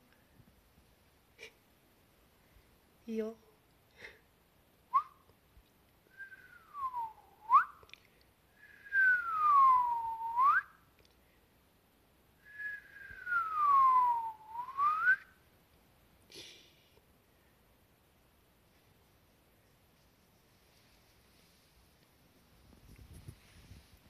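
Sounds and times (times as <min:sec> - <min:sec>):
person whistling: 0:04.9 - 0:05.2, 0:06.1 - 0:07.8, 0:08.6 - 0:10.7, 0:12.4 - 0:15.3.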